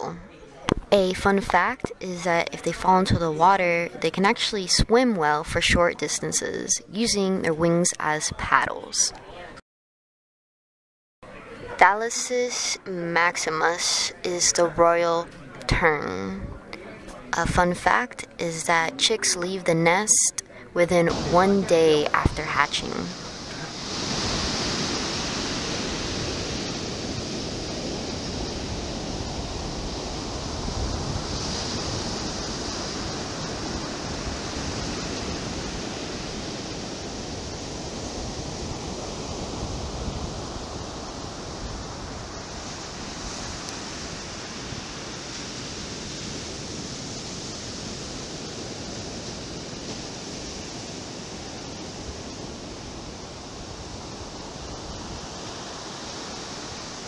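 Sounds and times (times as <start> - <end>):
surf washing onto beach: 21.1 - 57.0.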